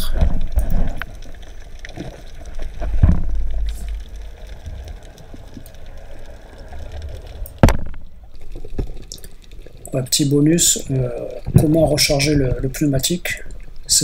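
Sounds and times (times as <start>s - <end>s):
underwater rumble of moving water: 0.0s - 14.0s
loud thump: 7.6s - 8.0s.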